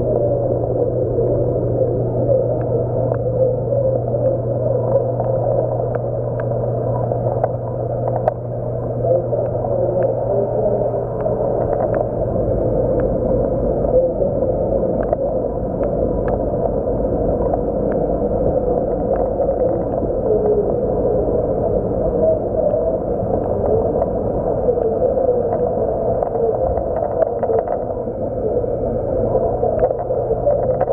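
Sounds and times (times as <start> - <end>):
aquarium water rushing and gurgling: 0.0 - 30.9
low hum: 0.0 - 30.9
faint clicks: 4.9 - 6.6, 7.2 - 8.5, 14.9 - 16.8.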